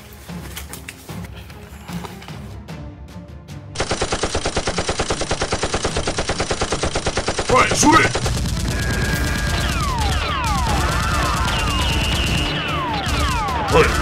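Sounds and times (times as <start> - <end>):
machine-gun fire sound effect: 3.8 - 14.0
falling whistling tones: 8.7 - 13.0.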